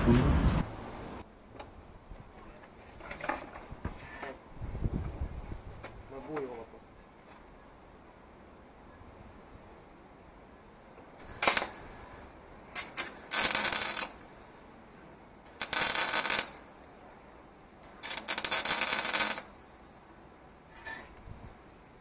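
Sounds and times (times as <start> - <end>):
electric arc welding: 11.2 - 14.7, 15.5 - 17.1, 17.8 - 20.0.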